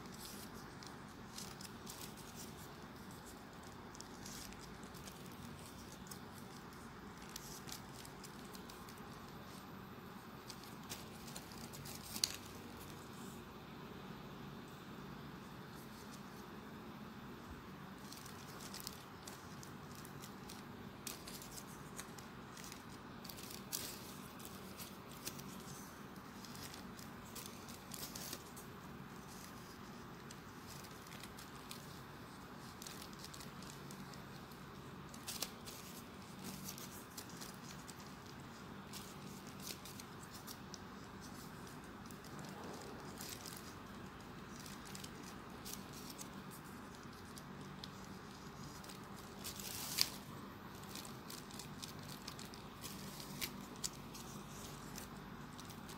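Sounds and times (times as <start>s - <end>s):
paper rustling: 0.0s - 13.4s, 15.4s - 16.7s, 17.3s - 55.9s
faint background hiss: 0.0s - 55.9s.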